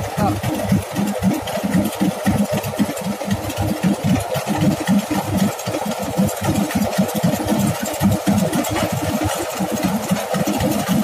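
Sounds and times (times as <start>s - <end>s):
combine harvester engine rumbling: 0.0s - 10.8s.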